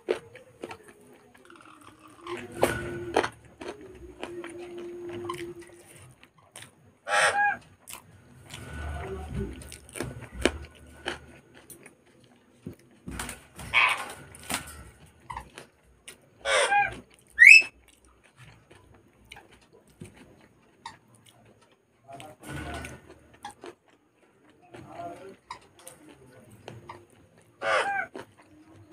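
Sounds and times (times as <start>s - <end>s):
moist chewing and smacking: 0.0s - 2.5s, 3.1s - 6.8s, 15.0s - 22.4s, 23.0s - 28.9s
crunchy bites: 0.0s - 6.8s, 9.5s - 28.9s.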